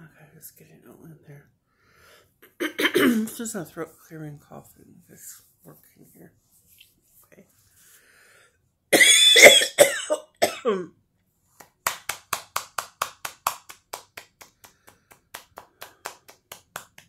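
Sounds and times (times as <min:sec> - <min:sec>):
woman coughing: 0:02.6 - 0:03.4, 0:09.0 - 0:10.9
hand slapping chest: 0:11.6 - 0:17.0.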